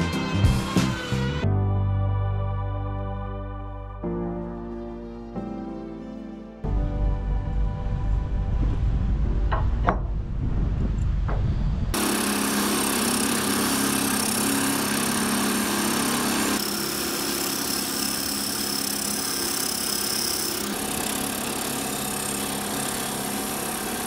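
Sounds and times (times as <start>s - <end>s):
cutting tool shaving wood: 12.0s - 24.0s
wood lathe motor hum: 12.0s - 24.0s.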